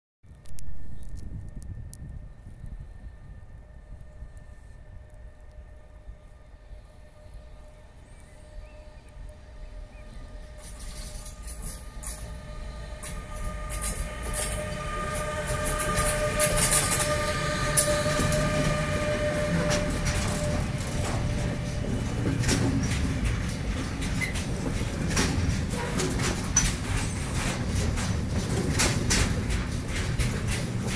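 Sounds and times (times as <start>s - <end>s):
electric locomotive whine: 0.3s - 30.9s
low rumble of wagons: 0.3s - 30.9s
wheels clicking over rail joints: 9.0s - 30.9s.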